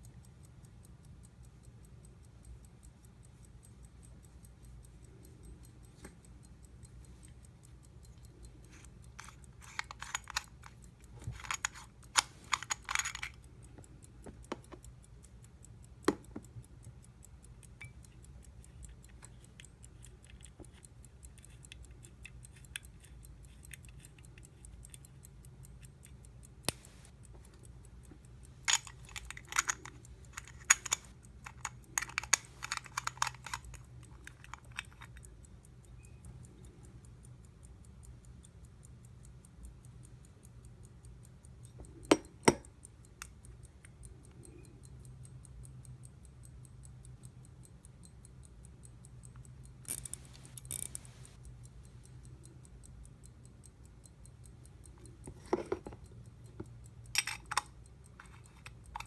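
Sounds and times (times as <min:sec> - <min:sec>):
pocket watch ticking: 0:00.0 - 0:59.0
metallic clicking and scraping: 0:04.4 - 0:15.0, 0:17.6 - 0:35.3, 0:49.3 - 0:52.5, 0:54.8 - 0:59.0.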